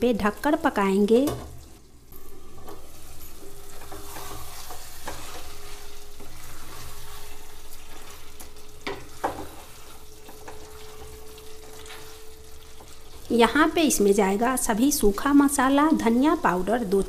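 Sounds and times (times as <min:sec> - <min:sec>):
meat sizzling in oil: 0:00.0 - 0:17.0
wooden spatula scraping pan: 0:02.3 - 0:13.0
spatula knocking on pan: 0:08.8 - 0:09.6.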